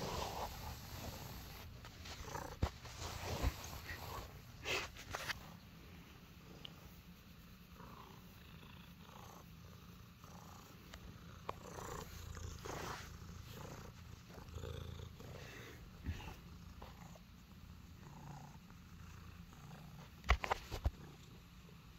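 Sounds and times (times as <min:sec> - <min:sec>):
hand rustling on fur: 0:00.0 - 0:08.4, 0:11.6 - 0:14.5
cat purring: 0:00.0 - 0:21.9.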